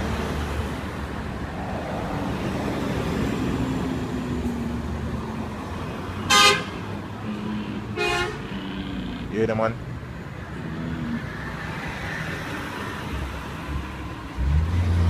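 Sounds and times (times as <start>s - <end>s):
road traffic: 0.0s - 15.0s
vehicle horn toots: 6.3s - 6.8s, 7.9s - 8.5s.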